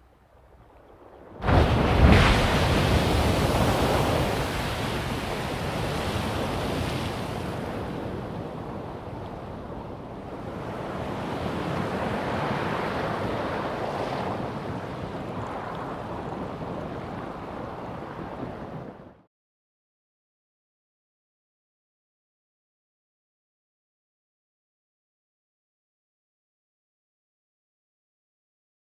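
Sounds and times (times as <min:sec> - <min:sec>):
geyser rush of water and steam: 0:01.4 - 0:07.9.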